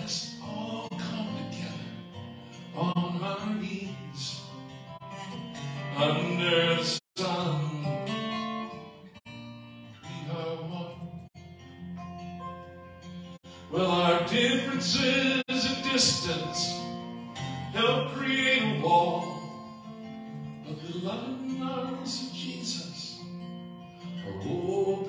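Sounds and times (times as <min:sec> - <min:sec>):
man singing: 0:00.0 - 0:04.6, 0:05.8 - 0:08.5, 0:10.0 - 0:11.3, 0:13.4 - 0:17.0, 0:17.7 - 0:19.8, 0:20.6 - 0:23.3, 0:24.2 - 0:25.0
acoustic guitar strumming: 0:00.0 - 0:25.0.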